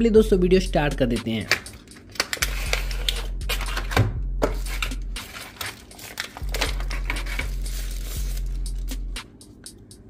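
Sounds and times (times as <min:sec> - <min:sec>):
plastic wrapper crinkling: 0:01.4 - 0:03.7, 0:04.6 - 0:08.9.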